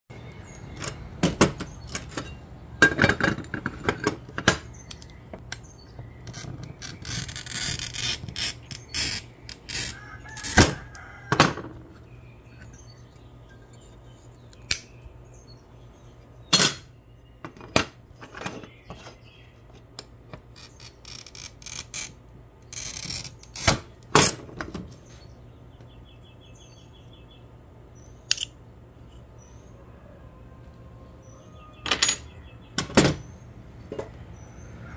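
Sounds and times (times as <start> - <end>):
glass cutter scoring glass: 6.2 - 11.0.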